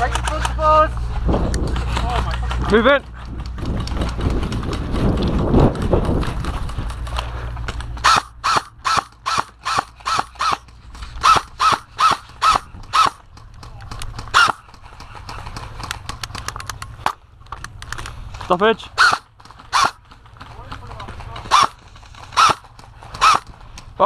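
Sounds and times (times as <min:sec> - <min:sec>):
low rumbling movement: 0:00.0 - 0:24.0
wind noise on microphone: 0:01.0 - 0:07.4
airsoft rifle shots: 0:08.0 - 0:17.2, 0:18.9 - 0:23.6.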